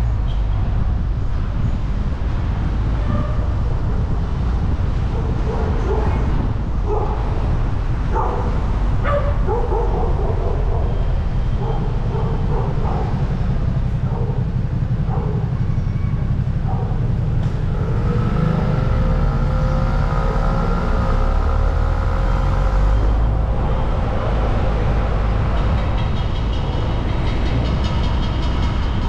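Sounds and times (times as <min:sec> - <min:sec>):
car driving rumble: 0:00.0 - 0:29.0
rising engine note: 0:17.5 - 0:25.6.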